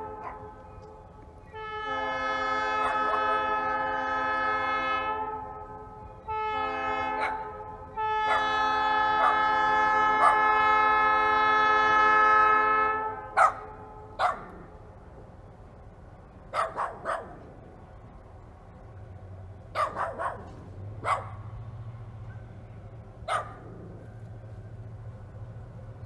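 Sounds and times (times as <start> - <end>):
locomotive air horn: 0.0 - 14.3
locomotive diesel engine rumble: 0.0 - 26.0
dog barking: 0.1 - 0.6, 2.8 - 3.5, 7.1 - 7.5, 8.2 - 10.6, 13.3 - 14.7, 16.5 - 17.5, 19.7 - 21.5, 23.2 - 23.9.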